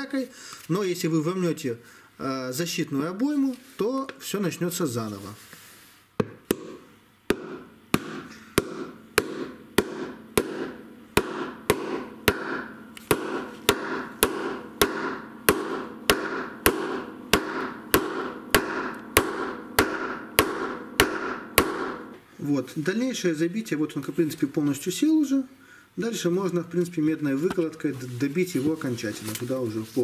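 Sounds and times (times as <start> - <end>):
hammer striking metal: 6.2 - 22.2.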